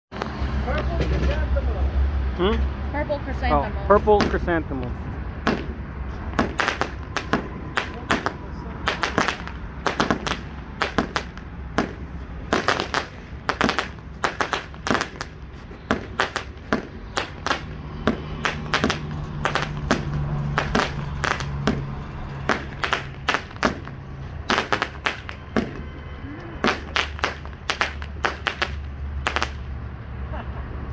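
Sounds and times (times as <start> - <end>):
firework launch pops: 5.4 - 21.9, 22.5 - 25.9, 26.6 - 29.6
small aerial firework bursts: 5.4 - 25.9, 26.6 - 29.8.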